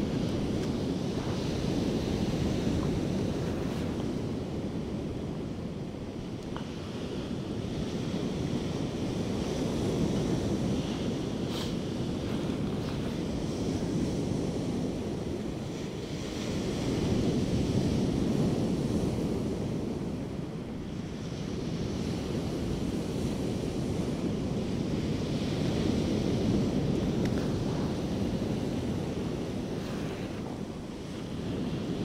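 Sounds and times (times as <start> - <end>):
sea surf breaking on beach: 0.0 - 32.0
wind rumbling on microphone: 0.0 - 32.0.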